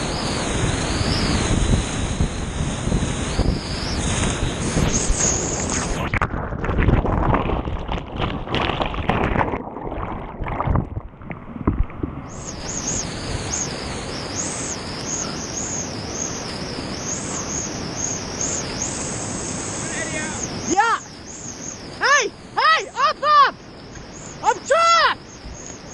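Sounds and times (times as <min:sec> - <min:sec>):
whitewater rushing: 0:00.0 - 0:25.9
muffled underwater splashes: 0:04.0 - 0:12.8.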